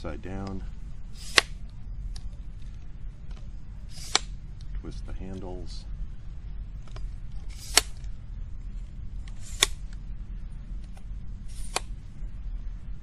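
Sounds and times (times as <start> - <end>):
steady low rumble: 0.0 - 13.0
tripod leg lock clicks: 1.2 - 1.6, 3.9 - 4.4, 6.9 - 8.1, 9.3 - 10.0, 10.8 - 11.9.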